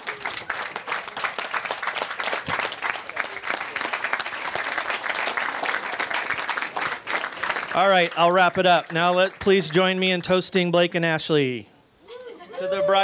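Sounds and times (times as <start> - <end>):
crowd applauding: 0.0 - 10.0.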